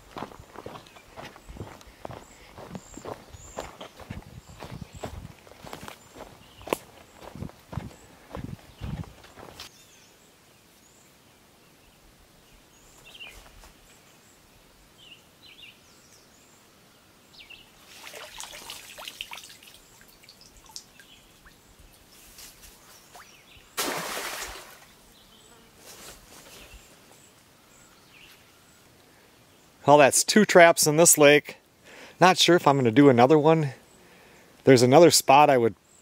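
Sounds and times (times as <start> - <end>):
faint bird chirps: 0.3 - 17.8
small splashes and dripping water: 17.8 - 21.7, 23.1 - 24.9
trap splashing into water: 23.8 - 24.9.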